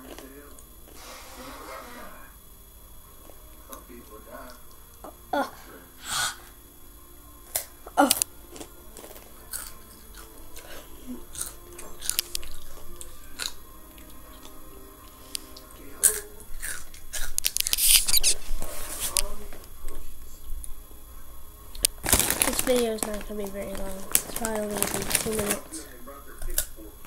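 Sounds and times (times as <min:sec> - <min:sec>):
chewing crunchy chips: 0:07.5 - 0:14.6, 0:15.4 - 0:18.3, 0:21.7 - 0:25.8.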